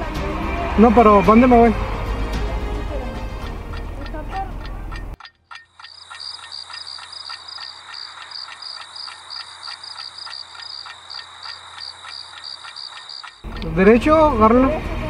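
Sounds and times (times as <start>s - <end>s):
rhythmic high chirps: 3.4s - 14.0s.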